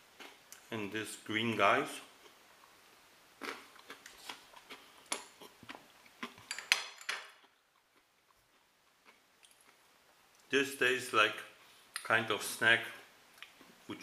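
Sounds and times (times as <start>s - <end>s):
snack being chewed with crunches: 0.2s - 0.7s, 3.4s - 6.5s.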